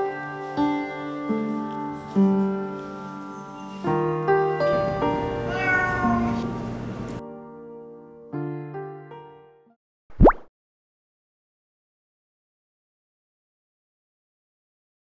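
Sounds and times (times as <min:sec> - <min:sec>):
gentle piano music: 0:00.0 - 0:09.8
cat meowing: 0:05.4 - 0:06.5.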